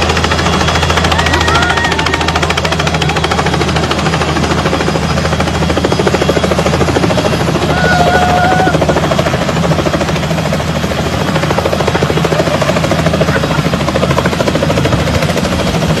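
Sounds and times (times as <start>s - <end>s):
helicopter engine running: 0.0s - 16.0s
helicopter rotor chopping: 0.0s - 16.0s.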